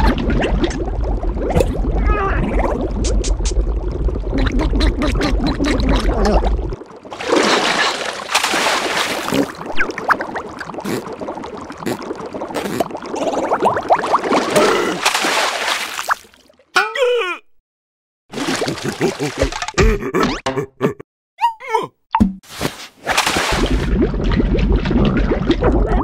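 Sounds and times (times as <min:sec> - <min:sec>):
underwater rumble with bubbling: 0:00.0 - 0:07.2, 0:23.6 - 0:26.0
water splashing and lapping: 0:00.0 - 0:16.7, 0:18.3 - 0:19.8, 0:22.5 - 0:26.0.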